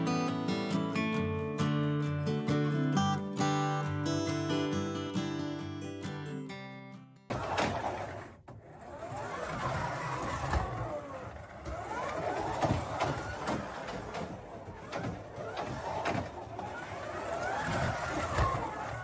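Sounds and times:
slot car electric motor whining: 7.3 - 19.0.

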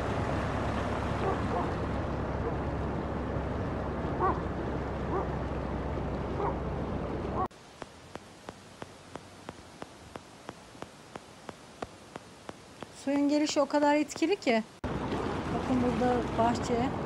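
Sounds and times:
floodwater rushing: 0.0 - 13.9, 14.7 - 17.0
quiet hiss: 7.4 - 14.8.

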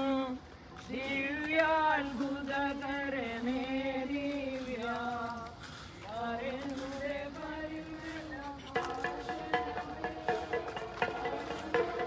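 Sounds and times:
person singing a slow hymn: 0.0 - 12.0
percussion strikes: 8.2 - 12.0.

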